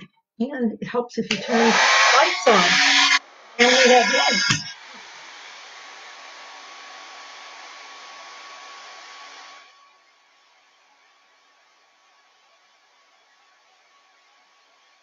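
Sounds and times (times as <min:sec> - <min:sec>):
hair dryer blowing: 0:01.3 - 0:09.7.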